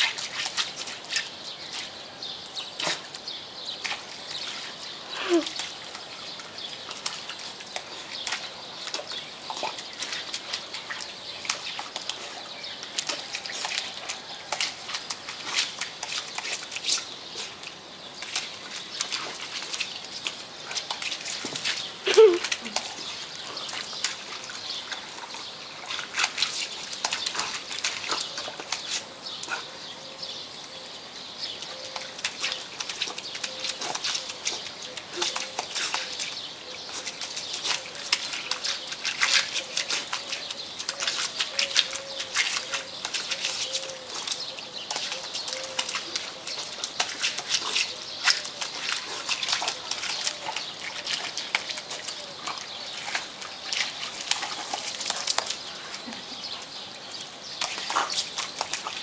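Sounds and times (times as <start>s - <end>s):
dog paws splashing in water: 0.0s - 59.0s.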